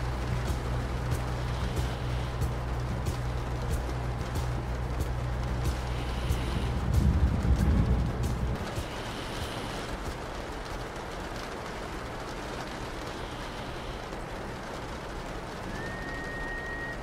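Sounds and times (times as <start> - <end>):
low rumble: 0.0 - 11.2
heavy rain on windows: 0.0 - 17.0.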